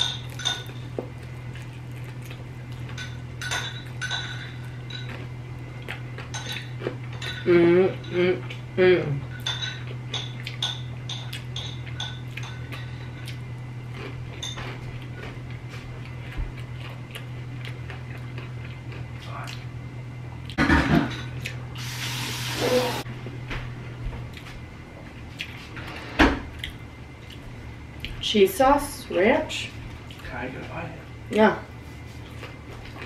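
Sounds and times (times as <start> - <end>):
steady low hum: 0.0 - 33.0
person chewing and biting food: 0.2 - 3.0, 4.6 - 7.2, 9.8 - 19.8, 25.3 - 25.7.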